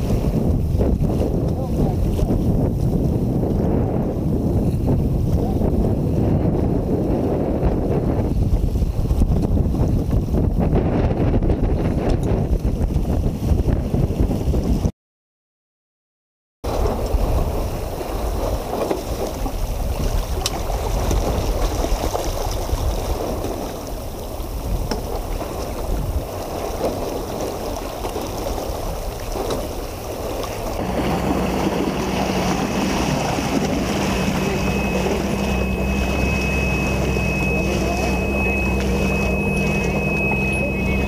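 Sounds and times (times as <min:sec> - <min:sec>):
motorboat engine running: 0:00.0 - 0:14.9, 0:16.7 - 0:41.0
water rushing past a hull: 0:00.0 - 0:14.9, 0:16.6 - 0:41.0
wind: 0:00.0 - 0:14.9, 0:16.6 - 0:41.0
thin high whine: 0:30.8 - 0:41.0.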